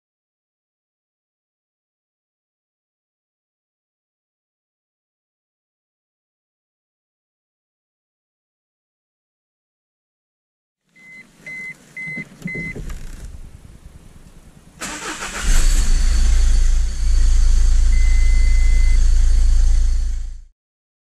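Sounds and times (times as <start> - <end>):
short beeps: 11.0 - 12.8, 17.8 - 19.1
diesel engine running: 12.6 - 20.5
engine starter cranking: 14.8 - 20.3
long beep: 16.0 - 20.4.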